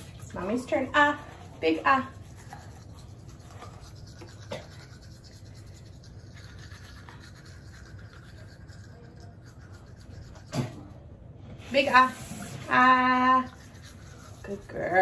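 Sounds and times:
toothbrush scrubbing teeth: 0.0s - 11.1s, 11.7s - 15.0s.

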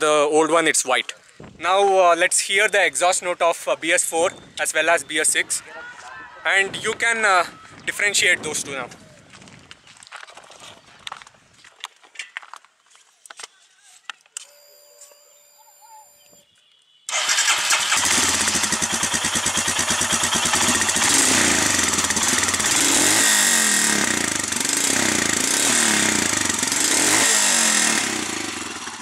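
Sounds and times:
motorcycle engine revving: 17.1s - 29.0s.

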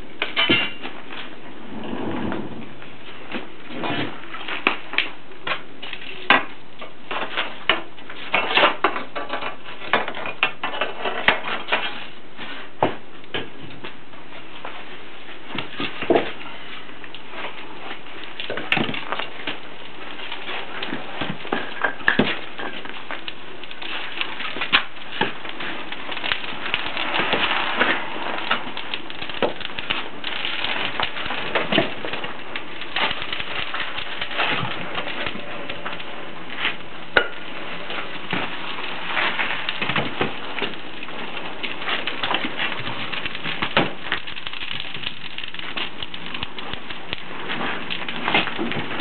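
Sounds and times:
fire crackling and popping: 0.0s - 49.0s
wood fire roaring: 0.0s - 49.0s
sharp cracks in fire: 15.6s - 49.0s.

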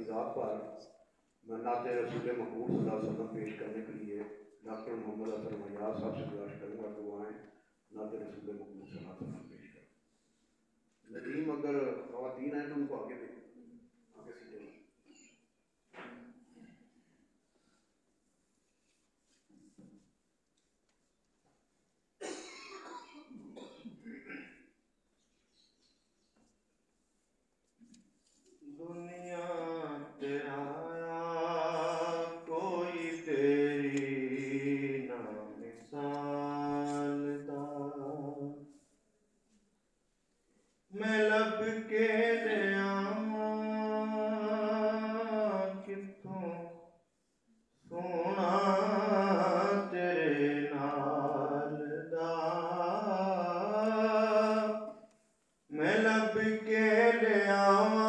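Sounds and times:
man chanting devotional poem: 0.0s - 10.0s, 11.0s - 13.5s, 28.6s - 38.8s, 40.9s - 46.9s, 47.8s - 55.1s, 55.7s - 58.0s
man singing unaccompanied: 28.7s - 38.7s, 40.9s - 47.0s, 47.8s - 55.1s, 55.7s - 58.0s.

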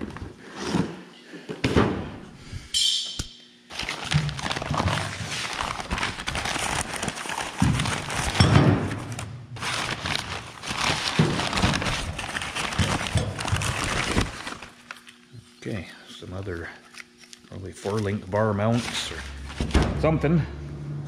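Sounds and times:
packing material rustling: 3.7s - 15.2s, 17.0s - 19.8s.

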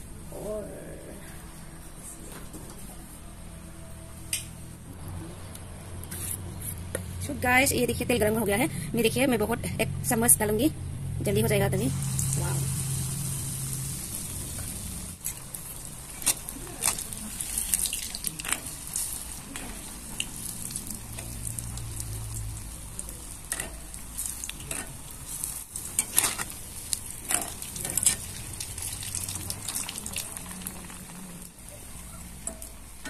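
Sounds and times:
batter sizzling in hot oil: 11.7s - 33.0s
steel ladle clicking and scraping: 23.5s - 28.8s.

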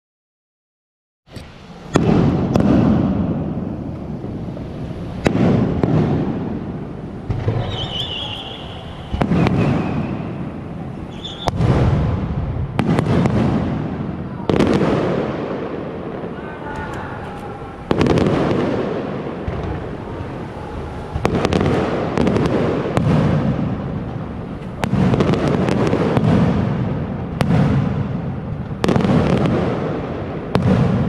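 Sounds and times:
fireworks booming: 1.3s - 31.0s
fireworks crackling: 1.3s - 31.0s
high firework whistle: 7.3s - 12.0s.

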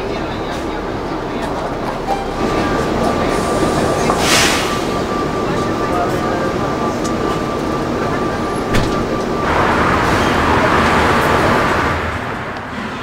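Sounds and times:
street traffic noise: 0.0s - 13.0s.

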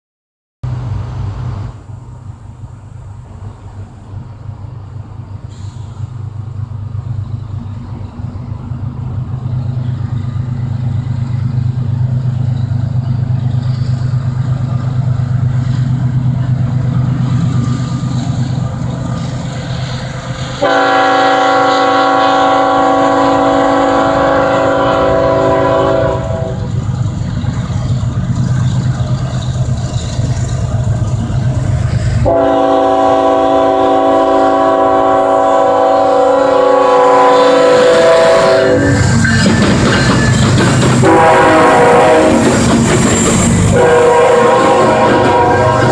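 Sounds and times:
diesel locomotive engine rumble: 0.6s - 45.9s
train air horn blast: 20.4s - 26.7s, 32.2s - 39.5s, 41.0s - 42.7s, 43.6s - 45.9s.

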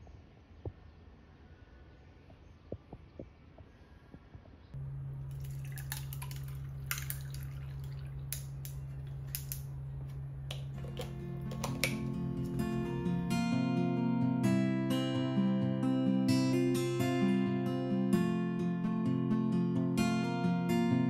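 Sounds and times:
low outdoor rumble: 4.7s - 14.1s
coffee pouring and dripping: 4.8s - 13.2s
steady low hum: 4.8s - 14.6s
ice cubes clinking and cracking: 5.3s - 9.7s, 10.5s - 13.0s.

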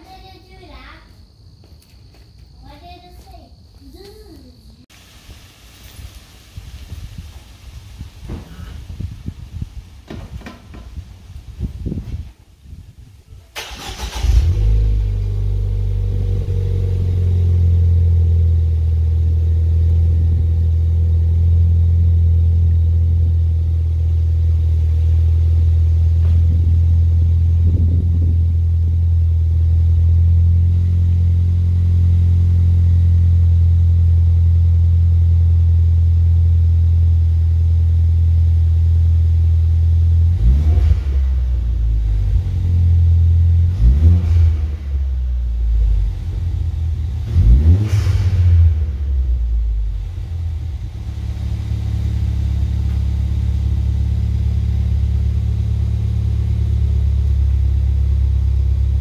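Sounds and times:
car engine idling: 13.4s - 59.0s.

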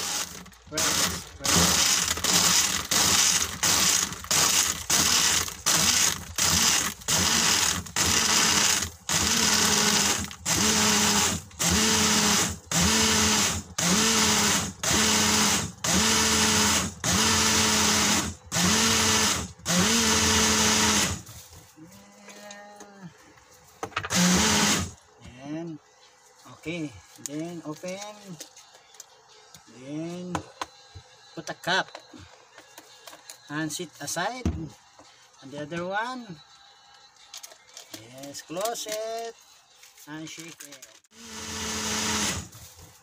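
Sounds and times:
blender motor whirring in bursts: 0.0s - 21.2s, 24.1s - 25.0s, 41.1s - 42.5s.

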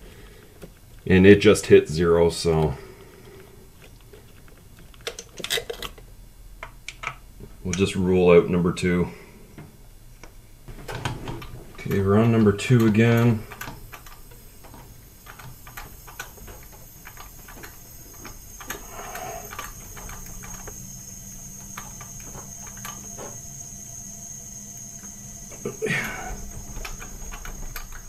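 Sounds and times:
tools clicking and tapping: 9.6s - 23.8s
high compressed air hiss: 11.3s - 28.0s.

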